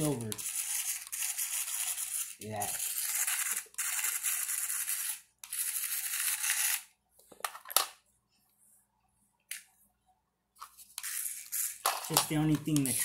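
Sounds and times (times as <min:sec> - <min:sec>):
toy car motor whirring: 0:00.0 - 0:06.9, 0:10.9 - 0:13.0.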